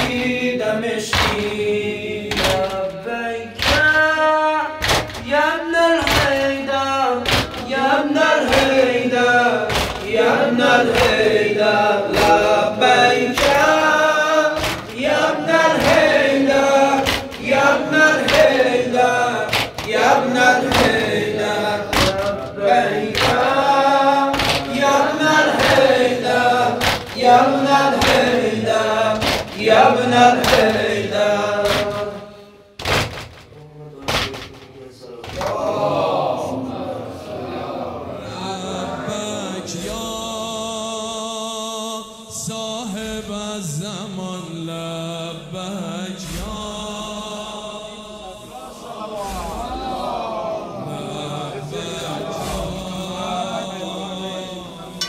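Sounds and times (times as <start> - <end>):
men chanting in unison: 0.0 - 32.8, 33.6 - 55.0
chest-beating thuds: 12.1 - 32.2.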